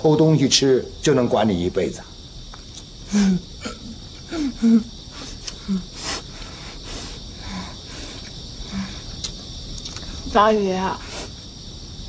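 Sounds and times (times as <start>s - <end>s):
woman chewing food: 5.2s - 10.2s.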